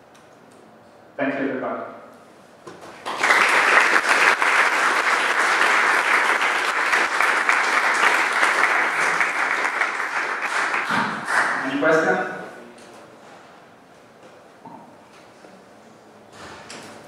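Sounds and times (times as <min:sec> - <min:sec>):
audience applause: 0:02.9 - 0:11.8.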